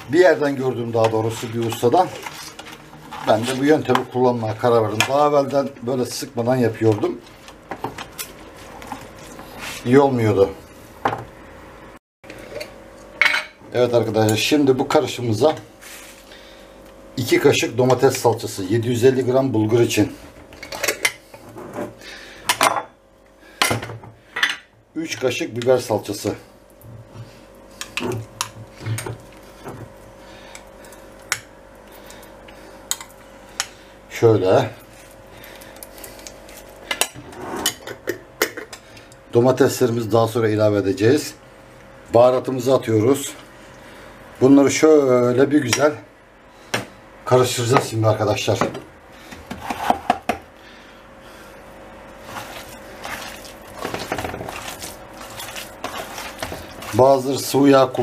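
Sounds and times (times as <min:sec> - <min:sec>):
faint steady hum: 0:00.0 - 0:58.0
hand squelching onion on metal tray: 0:52.1 - 0:58.0.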